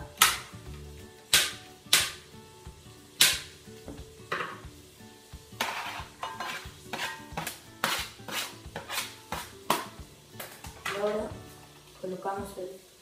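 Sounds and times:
background music: 0.0s - 12.8s
knife scraping garlic off board: 5.6s - 9.9s.

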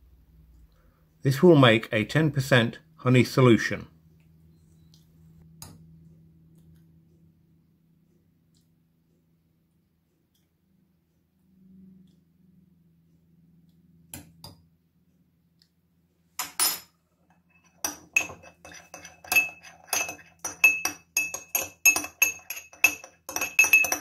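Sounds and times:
spoon clinking against glass: 17.5s - 24.0s
spoon knocks: 17.8s - 24.0s.

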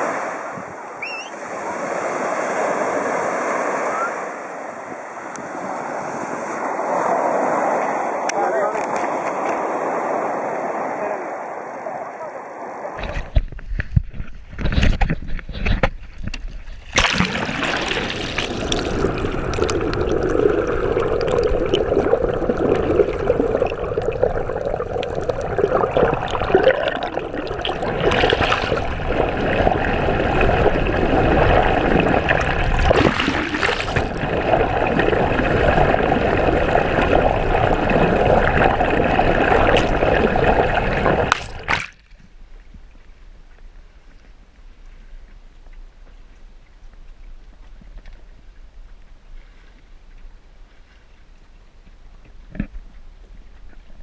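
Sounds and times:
water rushing and splashing: 0.0s - 13.5s, 16.7s - 43.5s.

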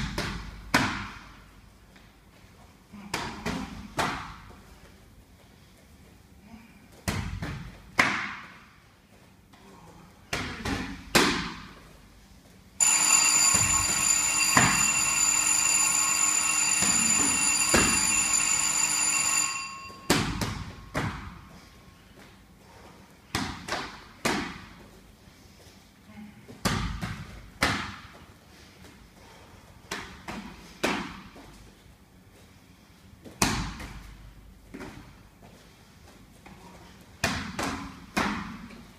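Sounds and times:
electronic timer alarm: 12.8s - 20.8s.

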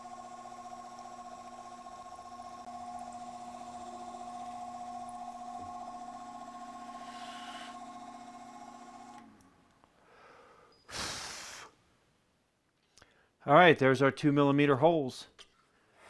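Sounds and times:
drill press motor whining: 0.0s - 9.5s
drill cutting hiss: 6.7s - 8.0s.

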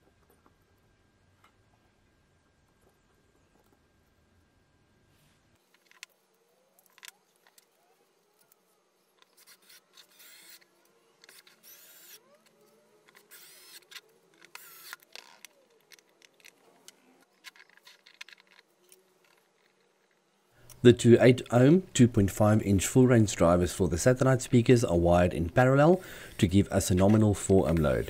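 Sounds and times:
clicks and knocks of handling parts: 5.6s - 11.7s, 12.4s - 20.8s
cordless drill driving screws: 9.4s - 15.5s.

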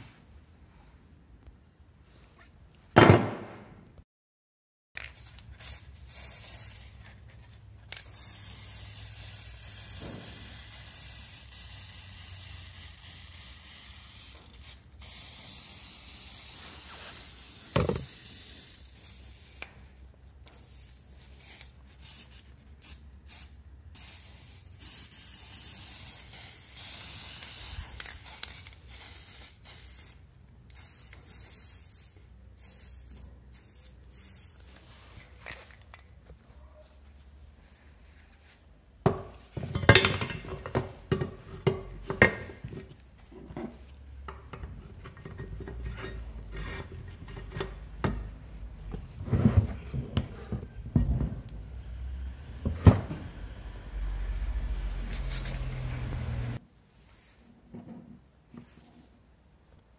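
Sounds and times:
thump: 3.0s - 3.8s, 10.0s - 10.4s
aerosol spray can hissing: 5.2s - 7.0s, 8.0s - 19.7s, 20.5s - 34.7s.

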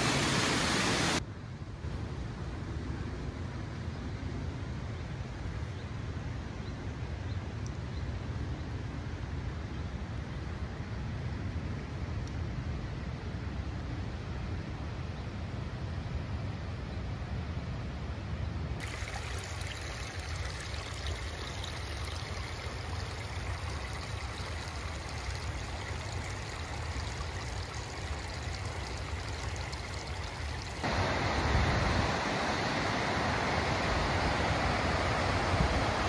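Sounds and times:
stream and waterfall rushing: 0.0s - 1.2s, 18.8s - 36.0s.

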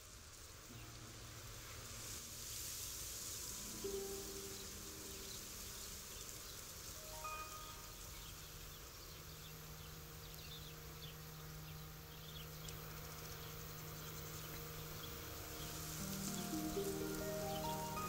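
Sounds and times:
insects buzzing and chirping: 0.0s - 18.0s.

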